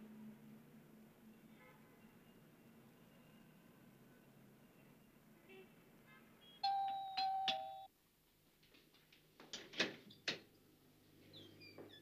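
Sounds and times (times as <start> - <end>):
doorbell chime ringing: 6.6 - 7.9.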